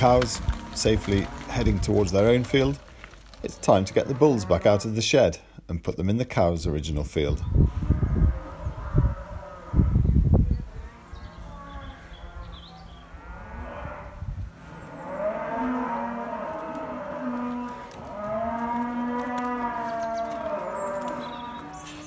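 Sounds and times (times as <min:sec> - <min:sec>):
cattle mooing: 0:00.0 - 0:02.8, 0:03.4 - 0:05.0, 0:10.7 - 0:22.0.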